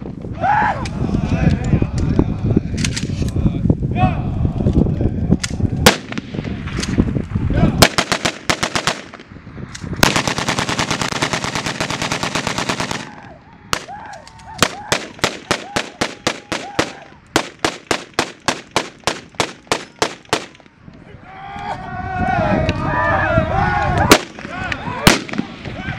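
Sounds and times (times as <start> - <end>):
rifle shots: 5.9 - 6.9, 7.8 - 9.3, 10.0 - 13.9, 14.6 - 20.7, 24.1 - 25.6.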